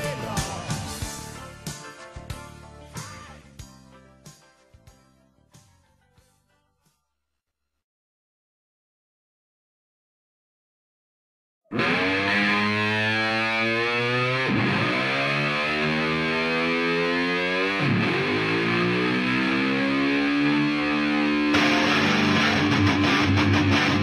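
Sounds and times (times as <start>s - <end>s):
electric guitar music: 11.7s - 24.0s.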